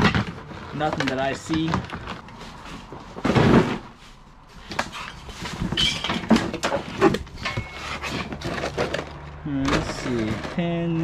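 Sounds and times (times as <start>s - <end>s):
hands rummaging in box: 4.6s - 11.0s.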